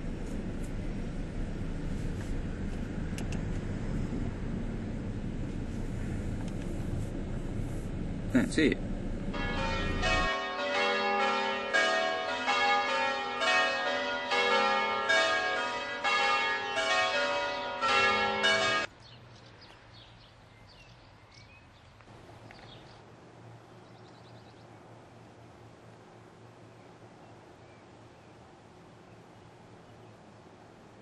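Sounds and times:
church bells ringing: 9.3s - 18.9s.

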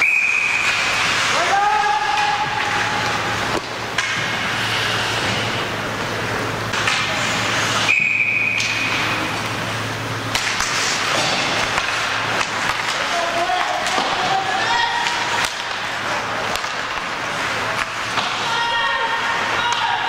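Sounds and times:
referee's whistle blast: 7.8s - 8.8s.

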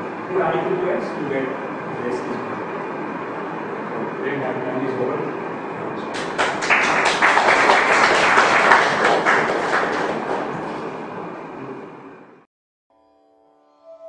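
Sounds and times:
audience applauding: 6.1s - 11.2s.

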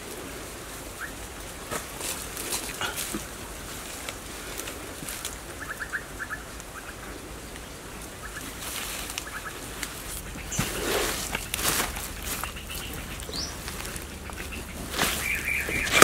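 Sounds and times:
bird calling: 0.8s - 1.4s, 5.1s - 16.0s
hands scraping dry soil: 1.6s - 5.5s, 8.4s - 16.0s.

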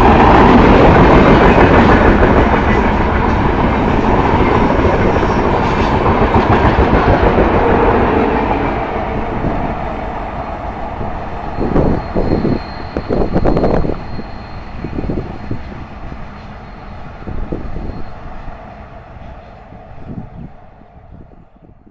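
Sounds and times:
wheels clacking over rail joints: 0.0s - 9.3s
train coaches rolling on rails: 0.0s - 21.6s.

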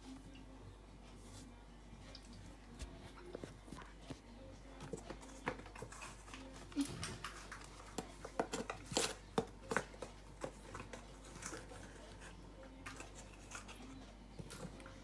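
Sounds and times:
kitchen utensils clicking and tapping: 4.8s - 12.0s.

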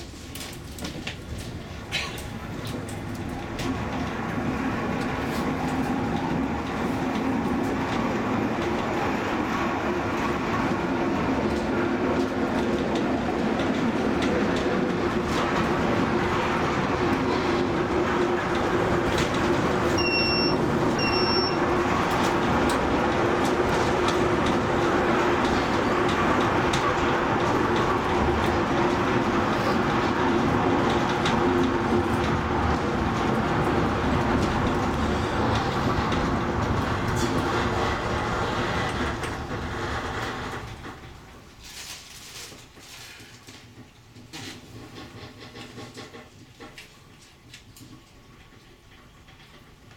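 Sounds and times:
funicular wheels rumbling on rail: 0.0s - 49.9s
short beeps: 20.0s - 21.6s.

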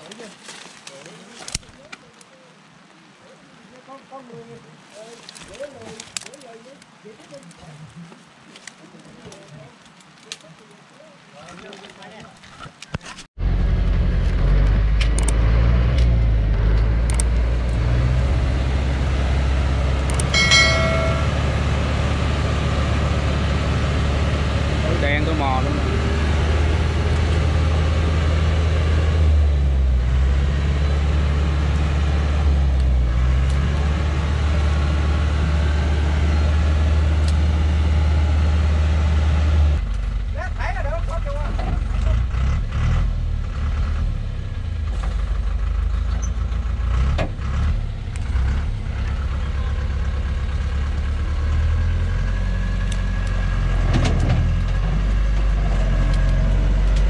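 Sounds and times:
truck engine droning: 13.4s - 57.0s.

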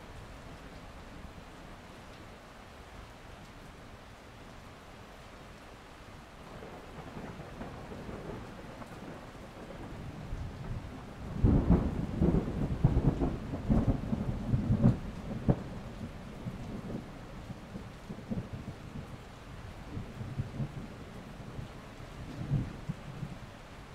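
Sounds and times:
steady rain: 0.0s - 23.9s
thunder rumbling and cracking: 6.6s - 19.2s, 19.9s - 23.4s.

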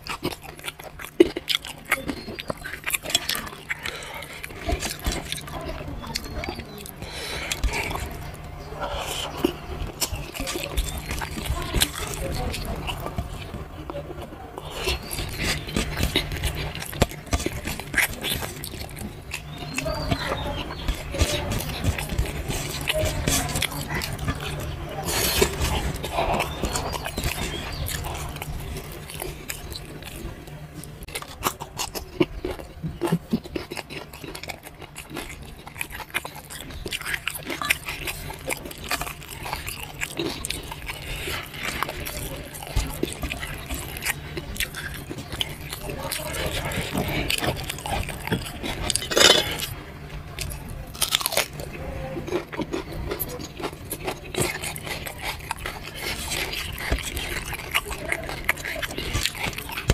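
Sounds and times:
chewing crunchy food: 0.0s - 59.9s.

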